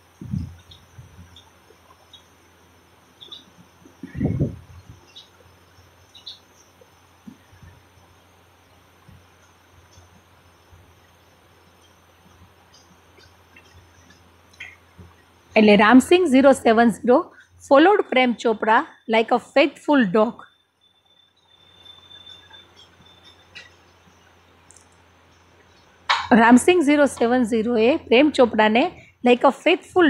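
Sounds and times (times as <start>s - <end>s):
low steady hum: 0.0s - 30.0s
faint short high chirps: 20.4s - 23.7s.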